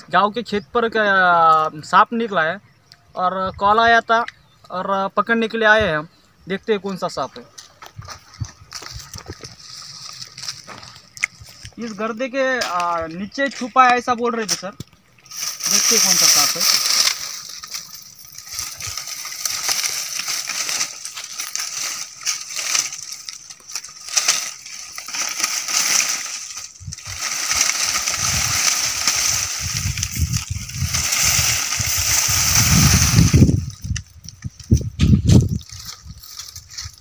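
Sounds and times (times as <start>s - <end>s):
dry leaves rustling and crackling: 7.5s - 37.0s.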